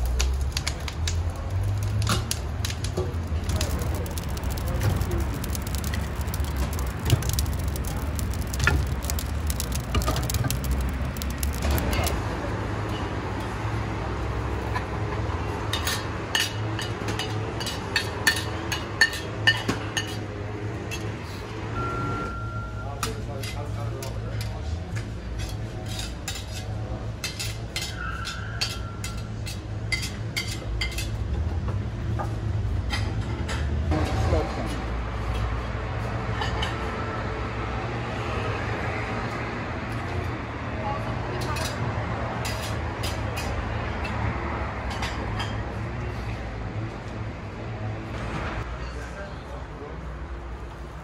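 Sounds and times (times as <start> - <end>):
wood fire crackling: 0.0 - 16.2.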